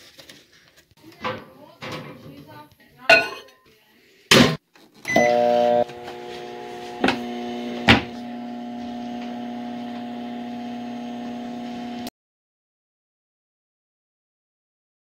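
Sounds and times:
microwave beep: 0:05.1 - 0:05.9
microwave humming: 0:05.1 - 0:12.1.

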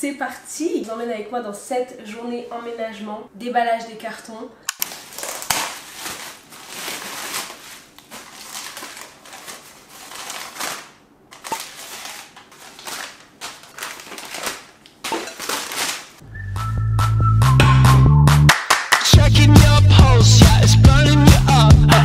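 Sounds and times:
paper and plastic bag crinkling: 0:04.8 - 0:16.2
electronic music with heavy bass: 0:19.2 - 0:22.0.

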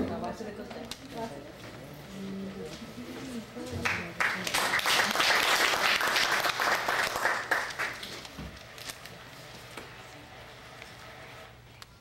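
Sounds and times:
audience applauding: 0:03.8 - 0:08.2.

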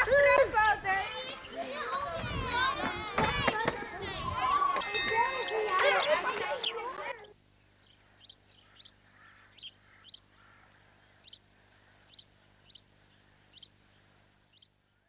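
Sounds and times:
small bird chirping: 0:04.8 - 0:15.0.

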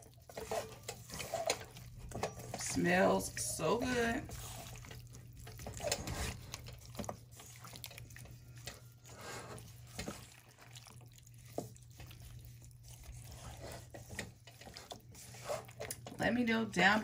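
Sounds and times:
wet squelches and slaps: 0:09.6 - 0:16.1.

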